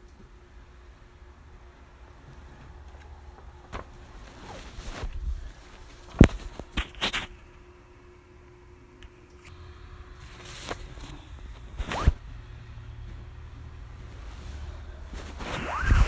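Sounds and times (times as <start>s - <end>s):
short scrape: 14.5s - 16.0s.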